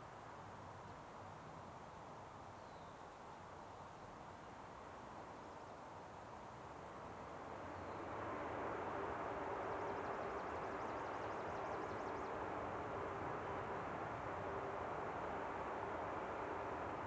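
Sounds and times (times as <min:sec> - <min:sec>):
distant engine rumble: 0:07.4 - 0:17.0.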